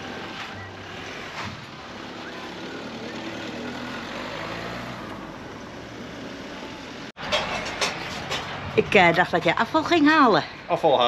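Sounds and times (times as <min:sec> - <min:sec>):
vehicle engine running: 0:00.0 - 0:07.2.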